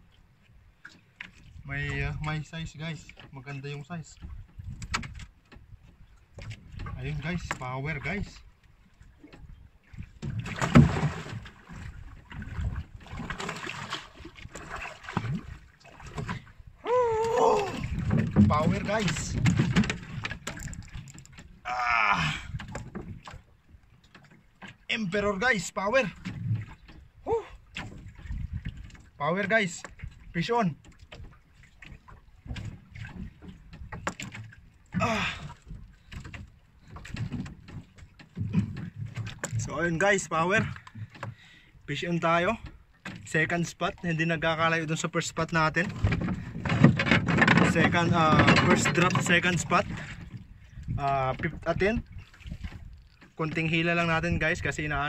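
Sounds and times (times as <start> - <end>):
water splashing against a boat hull: 0.0 - 55.0
wind on the microphone: 4.2 - 8.5, 9.1 - 23.5, 26.3 - 29.2, 45.7 - 55.0.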